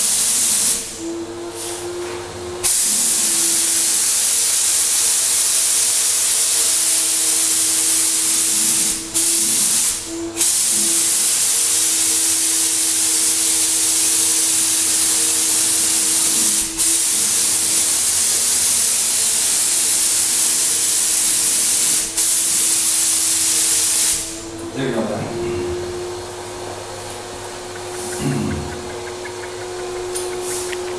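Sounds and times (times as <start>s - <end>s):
paint sprayer air hiss: 0.0s - 1.0s, 2.6s - 24.5s, 26.9s - 28.8s, 30.2s - 30.9s
turbine hum: 24.2s - 30.9s.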